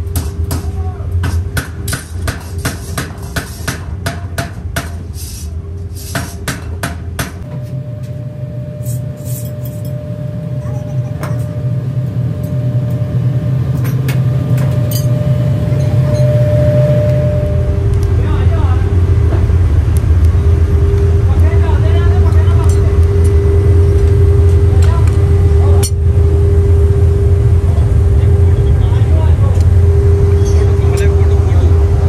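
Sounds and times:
rapid hammer blows on metal: 0.0s - 5.1s
machine hum: 7.0s - 32.0s.

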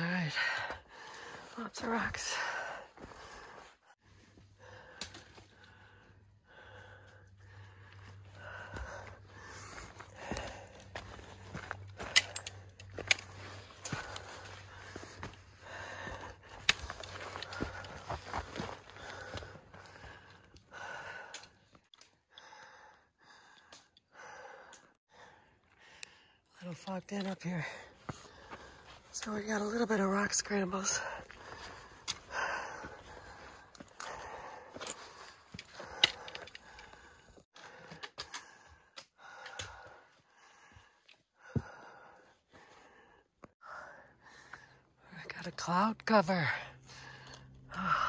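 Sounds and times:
person breathing hard: 0.2s - 26.5s, 27.7s - 29.1s, 31.0s - 45.1s, 46.7s - 48.0s
poles and boots clicking on rock: 7.9s - 22.1s, 31.2s - 41.8s.

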